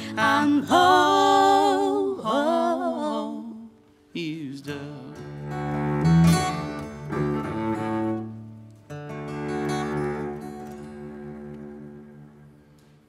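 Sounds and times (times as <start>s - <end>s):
acoustic guitar: 0.0s - 13.0s
bowed cello: 5.0s - 13.0s.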